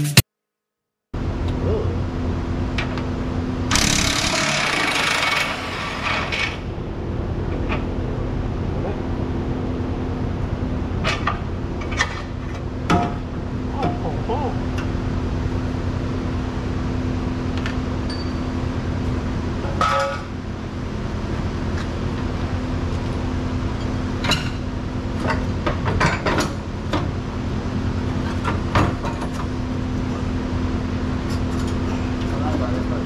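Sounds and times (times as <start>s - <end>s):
low hum: 1.2s - 25.4s.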